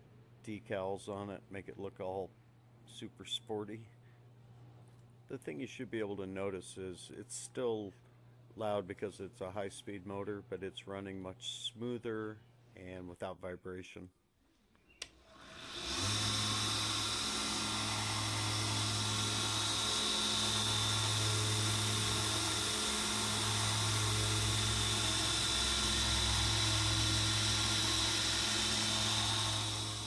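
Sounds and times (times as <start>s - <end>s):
belt sander motor whining: 15.0s - 30.0s.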